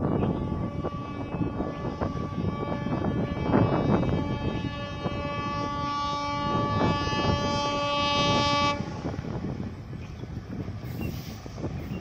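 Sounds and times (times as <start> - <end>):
diesel locomotive horn blast: 0.0 - 9.4
low rumble of train: 0.0 - 12.0.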